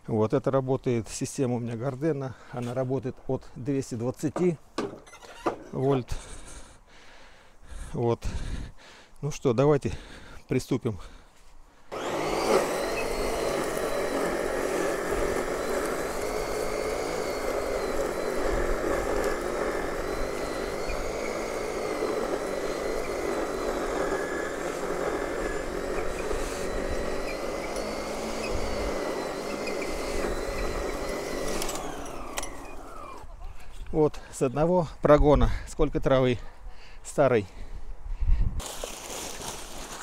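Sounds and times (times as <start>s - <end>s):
motor whine: 11.9s - 33.3s
electric lawn scarifier running: 11.9s - 33.4s, 38.6s - 40.0s.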